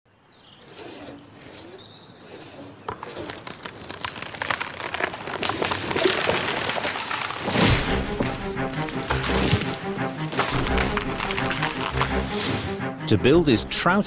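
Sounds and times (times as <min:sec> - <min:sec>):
wood and branches cracking: 0:02.8 - 0:12.9
tree landing with heavy thud: 0:05.3 - 0:12.8.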